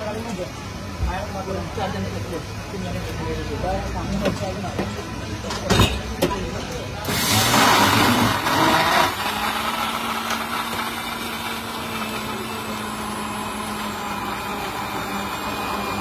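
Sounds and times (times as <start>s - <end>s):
electric blender running: 7.1s - 16.0s.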